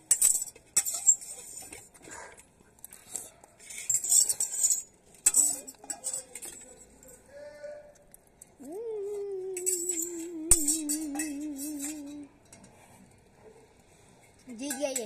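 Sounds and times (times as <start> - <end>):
girl mock-crying wail: 8.6 - 12.3.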